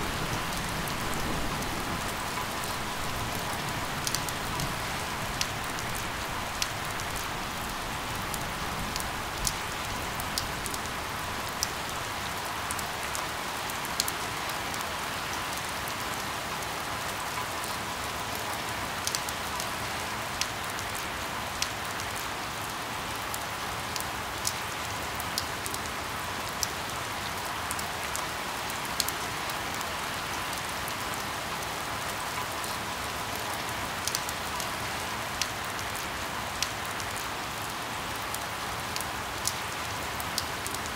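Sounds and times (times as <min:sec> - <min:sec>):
steady rain: 0:00.0 - 0:40.9.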